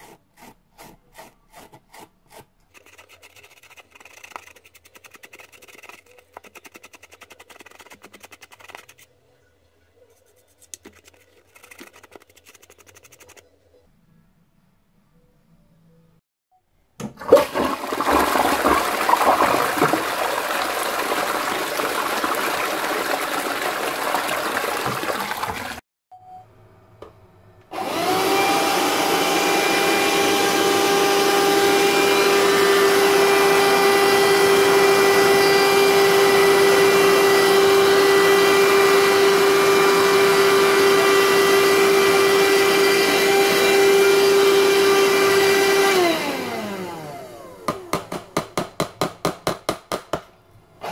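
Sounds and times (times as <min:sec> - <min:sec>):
toilet flushing: 0:17.0 - 0:25.8
handheld vacuum motor whine: 0:27.7 - 0:47.9.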